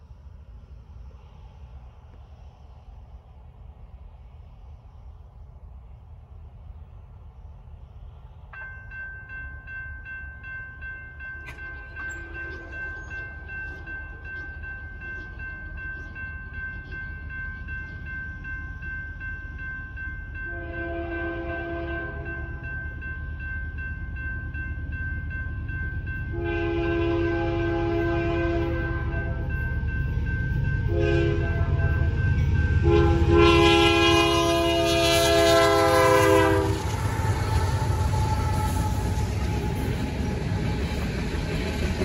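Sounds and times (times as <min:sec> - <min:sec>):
freight train rumbling: 0:00.0 - 0:42.0
railroad crossing bell ringing: 0:08.5 - 0:42.0
train horn blasts: 0:12.0 - 0:13.2, 0:20.4 - 0:22.6, 0:26.3 - 0:29.6, 0:30.8 - 0:39.9.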